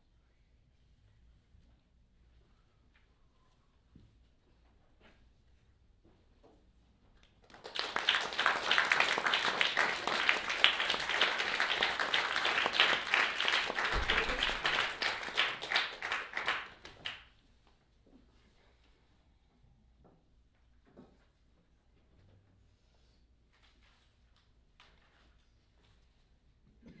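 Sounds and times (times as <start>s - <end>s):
audience applauding: 7.4s - 17.2s.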